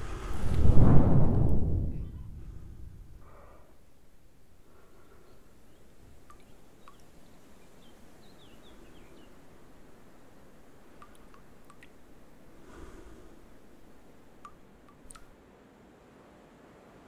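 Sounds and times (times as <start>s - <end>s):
faint steady hiss: 0.0s - 17.0s
water drops falling: 6.1s - 7.7s, 10.9s - 12.2s, 14.4s - 15.3s.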